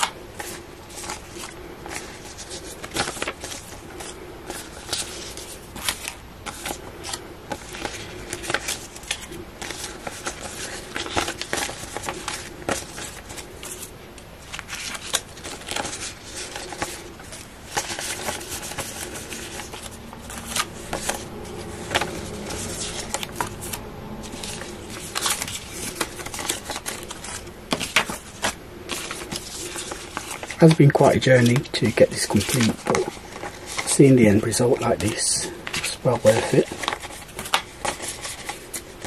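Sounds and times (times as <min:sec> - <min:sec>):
banknotes crinkling and rustling: 0:00.0 - 0:39.0.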